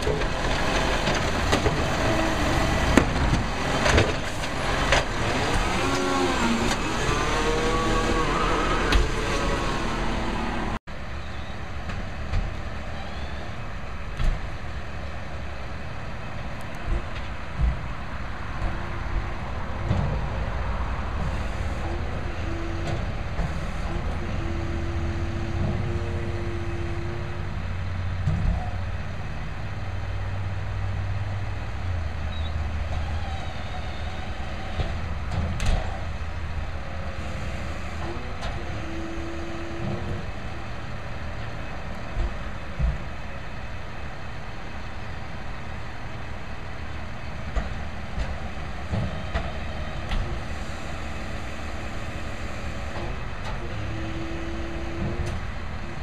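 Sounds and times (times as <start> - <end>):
knocks and clanks: 0.0 - 9.9, 16.8 - 22.0, 28.2 - 29.0, 41.3 - 43.3
truck diesel engine running: 0.0 - 56.0.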